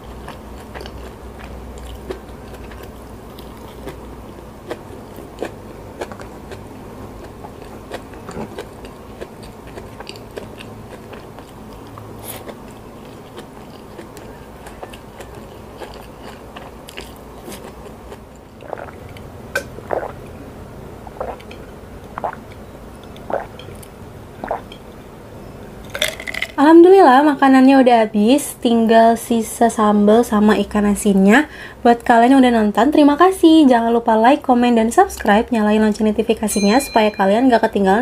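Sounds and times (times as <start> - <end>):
close chewing with crunches: 0.0 - 19.3
gulps of water: 18.6 - 20.3.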